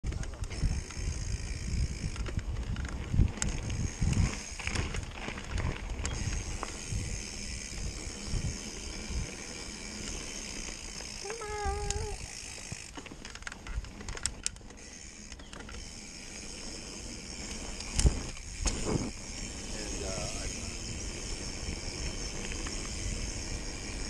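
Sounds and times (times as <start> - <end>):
bike clicks and rattles: 0.0 - 24.0
wind buffeting microphone: 0.1 - 13.0.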